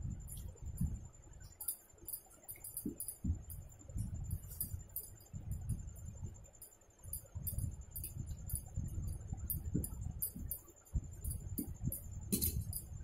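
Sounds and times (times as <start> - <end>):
clinks on steel plate: 12.3 - 12.9.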